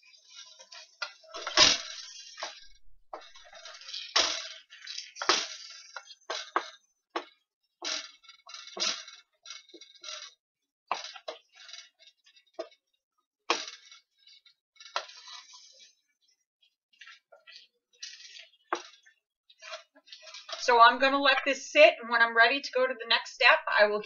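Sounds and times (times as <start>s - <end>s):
utensil scraping a metal saucepan: 0.0s - 6.8s, 13.6s - 16.0s.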